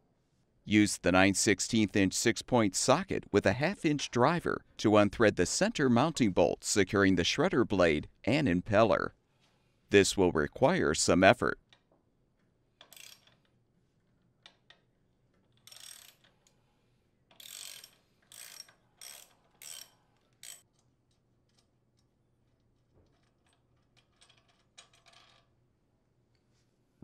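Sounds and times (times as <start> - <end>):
socket ratchet clicking: 17.3 - 20.6.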